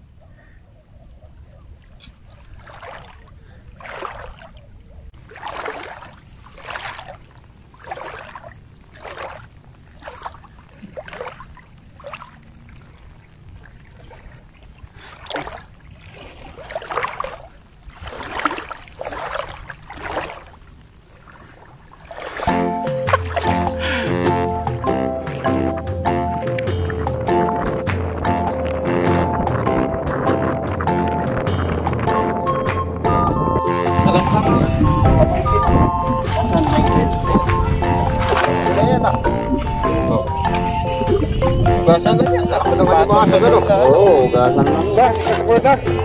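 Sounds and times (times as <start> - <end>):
wading splashes in seawater: 1.6 - 24.2, 36.4 - 46.0.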